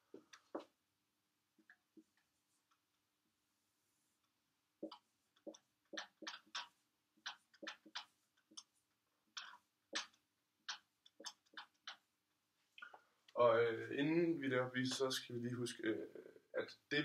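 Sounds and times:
marker writing on a whiteboard: 0.0 - 0.8, 1.5 - 12.4.

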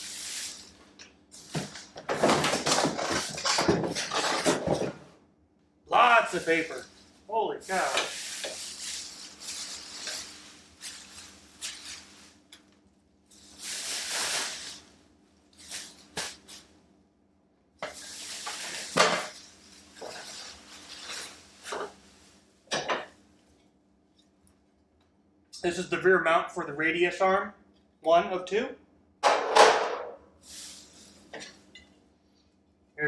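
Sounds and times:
shredded paper rustling: 0.0 - 4.9, 6.0 - 12.4, 13.3 - 15.0, 15.6 - 16.7, 17.9 - 22.5.

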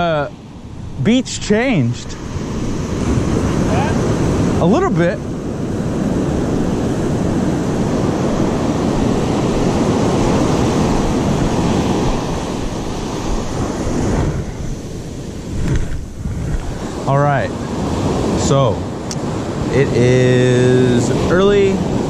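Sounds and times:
ocean surf breaking on beach: 0.0 - 22.0.

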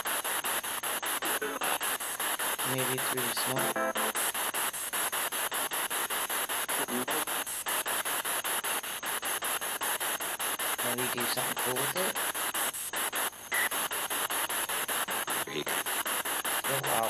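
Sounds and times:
pulsing radio static: 0.0 - 17.0
radio music: 1.2 - 4.8, 6.7 - 7.7, 10.8 - 12.3, 15.1 - 17.0
radio voice: 2.6 - 4.3, 6.8 - 7.4, 10.8 - 12.2, 15.4 - 15.8, 16.6 - 17.0.

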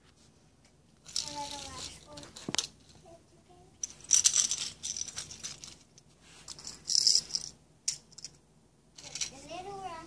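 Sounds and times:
toy cars rattling on concrete: 1.0 - 2.8, 3.8 - 8.4, 9.0 - 9.5.

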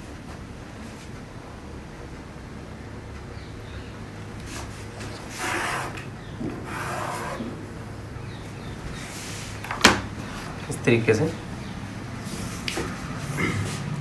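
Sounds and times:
chalk scratching on fabric: 6.6 - 7.5.

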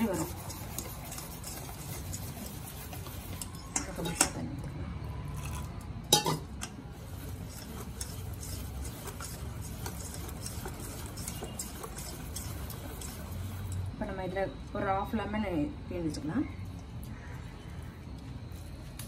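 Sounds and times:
wire whisk beating batter in bowl: 0.0 - 4.4, 7.0 - 13.8.

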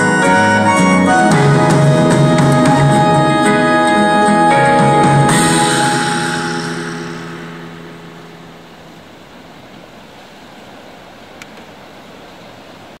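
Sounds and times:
held music chord: 0.0 - 9.4.

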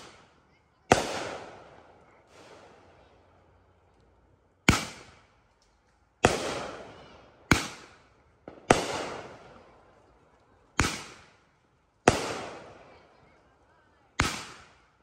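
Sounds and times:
fireworks bangs: 0.0 - 3.2, 4.7 - 5.3, 6.2 - 10.0, 12.1 - 13.3, 14.1 - 14.9.

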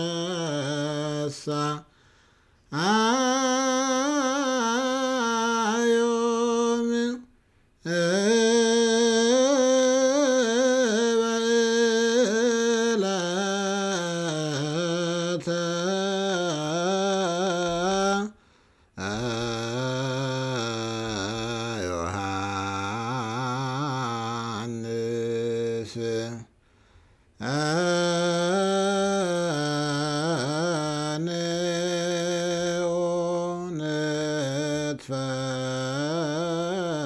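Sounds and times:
man chanting solo: 0.0 - 1.9, 19.0 - 26.5, 27.4 - 37.0.

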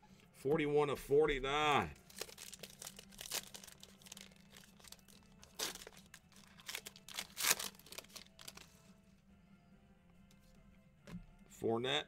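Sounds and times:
foil wrapper tearing and crinkling: 2.1 - 8.7.

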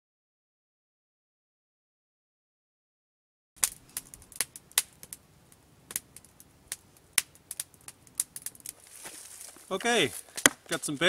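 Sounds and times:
campfire crackling and popping: 3.6 - 11.0.

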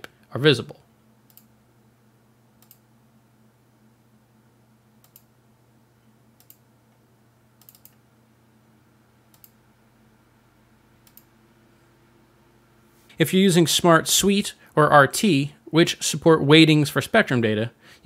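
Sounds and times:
faint low hum: 0.0 - 18.0
computer mouse clicking: 1.3 - 1.5, 2.6 - 2.8, 5.0 - 5.3, 6.4 - 6.6, 7.6 - 8.0, 9.3 - 9.6, 11.0 - 11.3.

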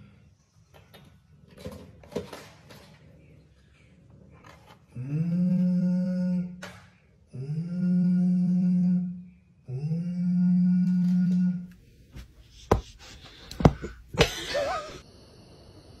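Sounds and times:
person humming low notes: 5.0 - 6.6, 7.3 - 11.8.

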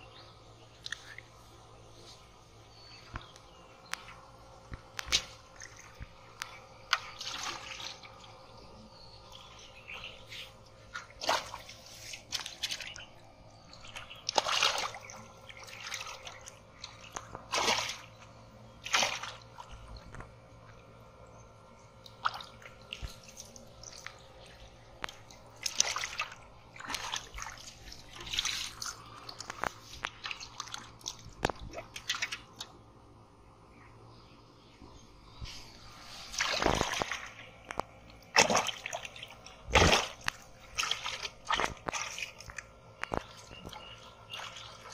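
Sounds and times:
muddy water splashing: 0.8 - 21.1, 21.9 - 33.0, 35.4 - 44.9
water slopping in a pot: 10.8 - 20.8, 22.0 - 32.8, 36.3 - 44.9.

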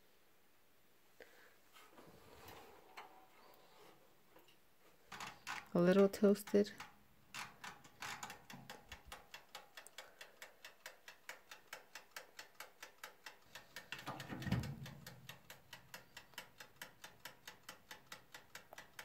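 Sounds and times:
hand rubbing oven knobs: 5.0 - 9.6
wind-up timer ticking: 5.1 - 19.0.

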